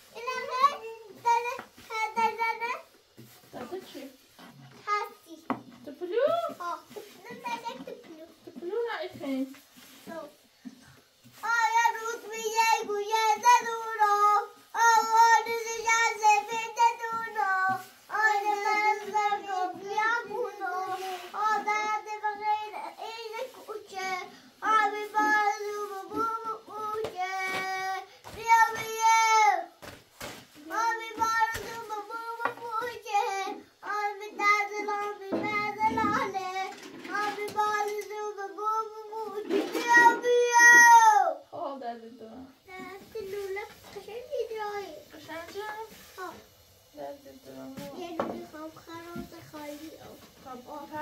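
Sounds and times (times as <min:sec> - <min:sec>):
child singing: 0:00.1 - 0:02.8, 0:11.4 - 0:29.7, 0:30.6 - 0:41.4, 0:47.8 - 0:51.0.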